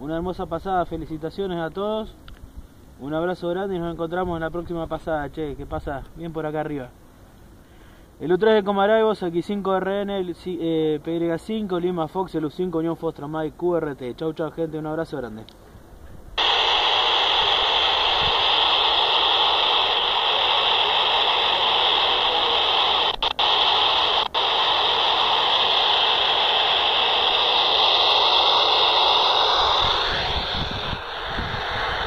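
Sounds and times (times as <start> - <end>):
radio static hiss: 16.4 - 32.0.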